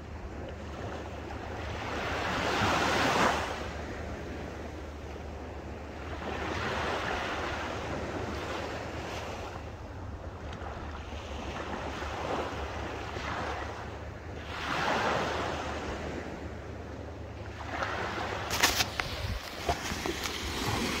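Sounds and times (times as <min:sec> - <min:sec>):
small waves washing on beach: 0:00.1 - 0:04.6, 0:05.9 - 0:16.6, 0:17.4 - 0:21.0
wind rumbling on microphone: 0:05.4 - 0:21.0.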